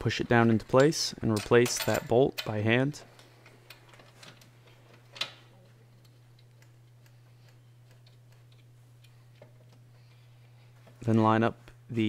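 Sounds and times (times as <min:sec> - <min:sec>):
steady low hum: 0:00.0 - 0:12.0
bolt threading metallic ticks: 0:06.0 - 0:09.8.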